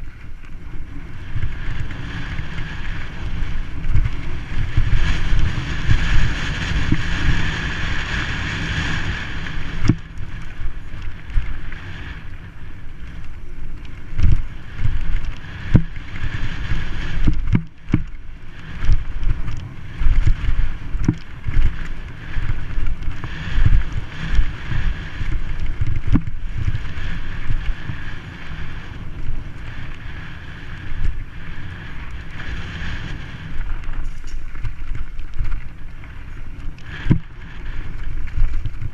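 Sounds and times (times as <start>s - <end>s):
bike tyres rumbling on dirt: 0.0s - 38.9s
wind buffeting microphone: 0.0s - 38.9s
bike knocks and rattles: 13.0s - 27.1s, 32.3s - 38.9s.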